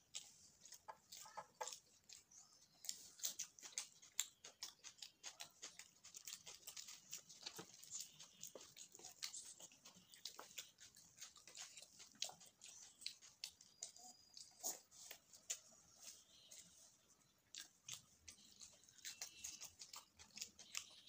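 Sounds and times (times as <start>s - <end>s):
wet chewing and lip smacking: 0.0s - 21.0s.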